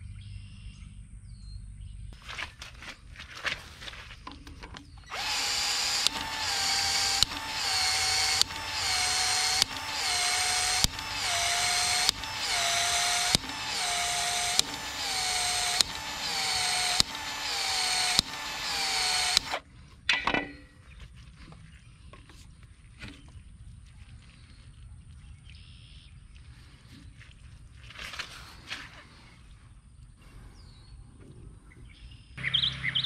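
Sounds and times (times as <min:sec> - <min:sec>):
pipe expansion tool motor strokes: 0:05.1 - 0:19.6
tool clicks: 0:05.1 - 0:20.5.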